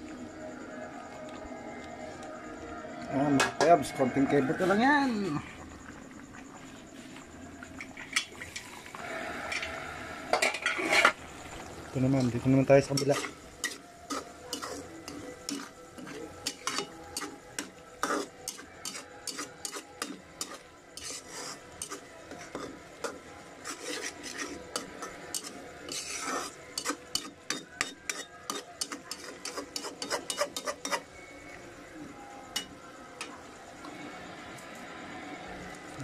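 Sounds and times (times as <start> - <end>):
metal spoon scraping frying pan: 10.3 - 11.2, 12.8 - 22.7, 23.6 - 31.1.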